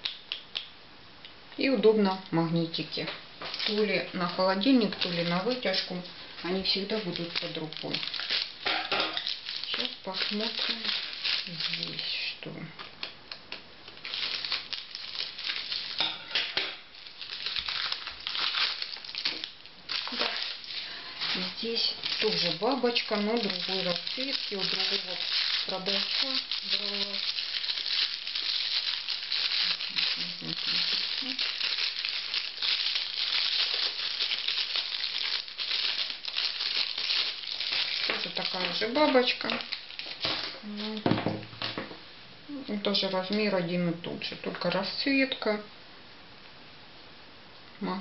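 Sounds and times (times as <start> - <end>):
plastic packaging crinkling: 2.7 - 41.8
scissors snipping plastic bag: 3.5 - 13.0, 13.9 - 41.0.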